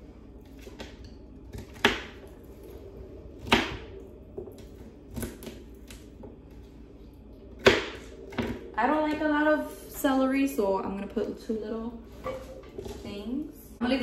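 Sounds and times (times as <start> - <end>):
knife chopping on wooden board: 7.6 - 8.6.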